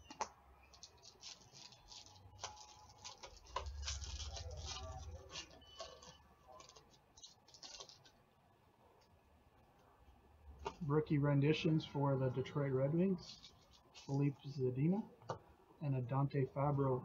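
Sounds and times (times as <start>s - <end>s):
cards rustling: 0.0s - 8.2s, 13.2s - 14.5s
wrapper crinkling as it is torn: 0.1s - 8.2s, 13.2s - 14.2s.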